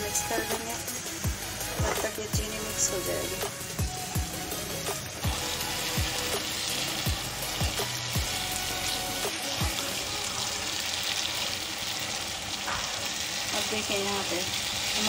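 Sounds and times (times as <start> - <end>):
food sizzling in a frying pan: 0.0 - 15.0
background beat thumps: 0.4 - 2.6, 12.6 - 13.2.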